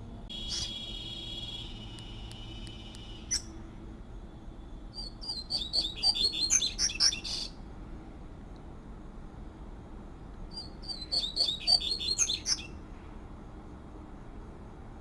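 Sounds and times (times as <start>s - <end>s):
bird singing buzzy note: 0.3s - 3.5s
bird twittering: 0.3s - 3.5s, 4.9s - 7.6s, 10.5s - 12.8s.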